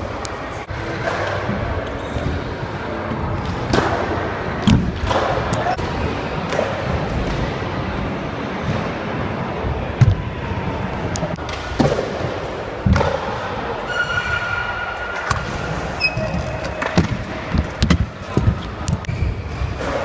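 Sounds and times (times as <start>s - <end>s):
short high squeal: 13.9s - 15.1s.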